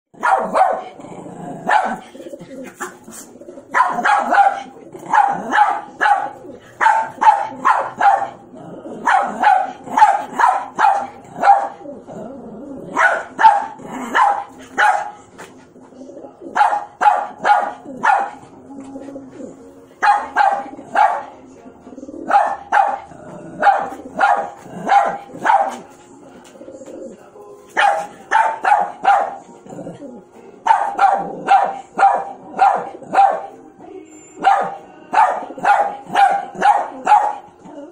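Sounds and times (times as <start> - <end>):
small dog barking: 0.2 - 1.0, 1.6 - 2.0, 3.7 - 8.4, 9.0 - 11.8, 12.9 - 15.2, 16.5 - 18.4, 20.0 - 21.3, 22.3 - 25.8, 27.8 - 29.4, 30.7 - 33.6, 34.4 - 37.5.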